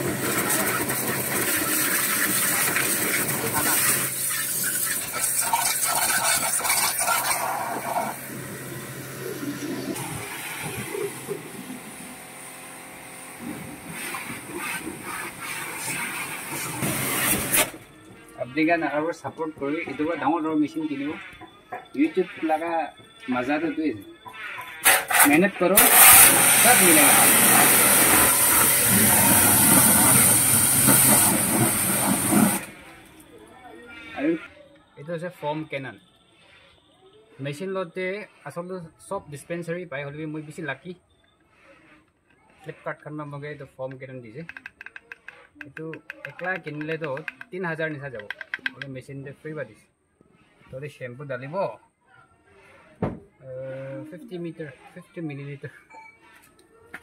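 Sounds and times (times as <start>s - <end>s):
pressure washer jet hissing: 0.0s - 21.4s, 24.4s - 33.2s
washer motor humming: 0.0s - 33.2s.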